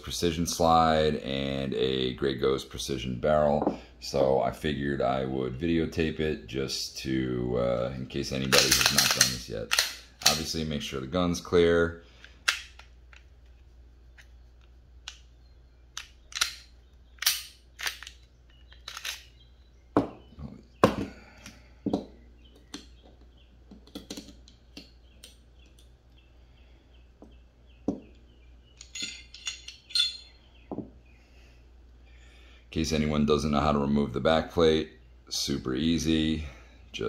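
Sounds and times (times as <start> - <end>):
pistol parts clicking and clacking: 8.4 - 10.5, 12.2 - 13.6, 15.9 - 19.4, 28.7 - 30.8.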